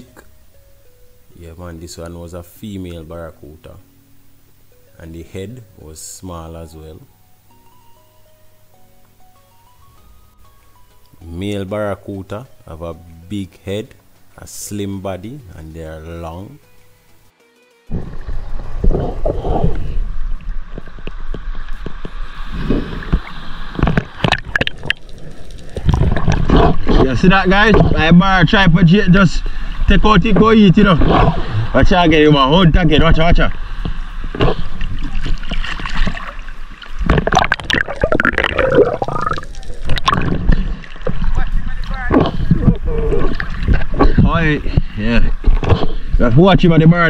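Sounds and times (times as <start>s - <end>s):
water sloshing and gurgling: 17.9s - 28.2s, 29.5s - 31.8s, 33.8s - 46.8s.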